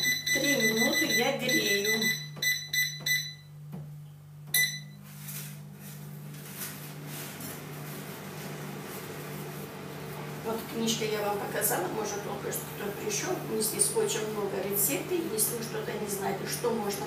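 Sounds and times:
air fryer panel beeps: 0.0s - 3.6s, 4.5s - 5.0s
air fryer fan whirring: 0.0s - 17.0s.

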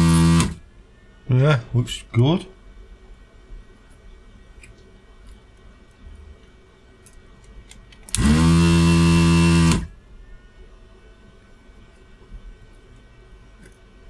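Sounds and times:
vacuum pump buzzing hum: 0.0s - 0.7s, 8.1s - 10.1s.

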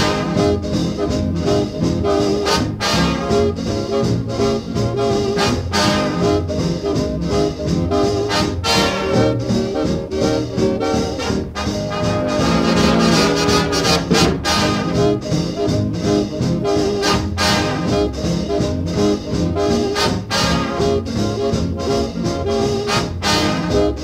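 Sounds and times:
upbeat swing music with brass: 0.0s - 24.0s.

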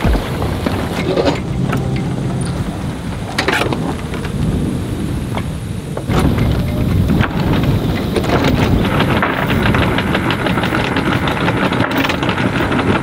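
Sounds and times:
wind rumbling on microphone: 0.0s - 13.0s
sailcloth flapping: 6.0s - 13.0s.

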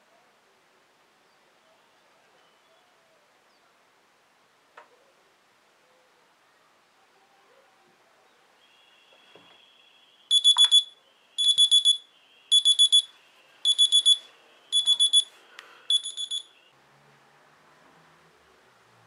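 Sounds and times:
smartphone alarm beeping: 10.3s - 16.6s.

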